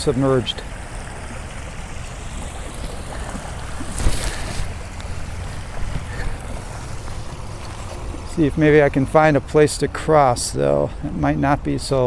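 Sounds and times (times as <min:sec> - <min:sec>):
rushing river water: 0:00.0 - 0:12.0
wind rumbling on microphone: 0:02.4 - 0:08.3.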